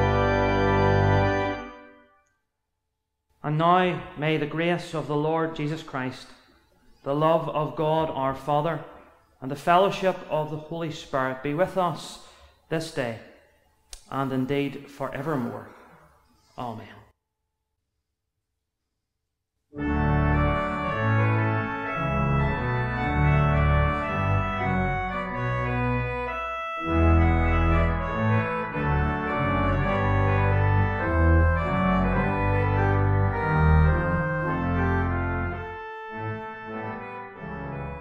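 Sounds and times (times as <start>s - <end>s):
church organ playing chords: 0.0s - 2.2s, 19.8s - 38.0s.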